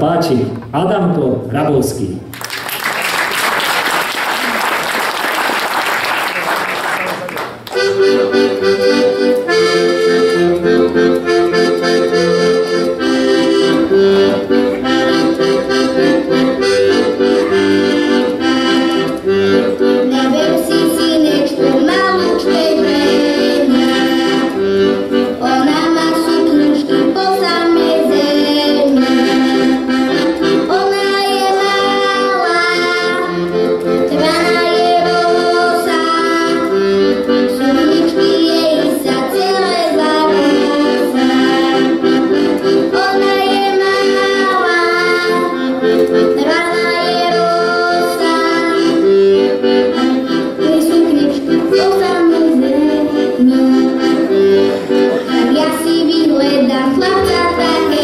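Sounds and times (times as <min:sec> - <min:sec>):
applause: 0:02.3 - 0:07.8
piano accordion playing tune: 0:03.1 - 0:58.0.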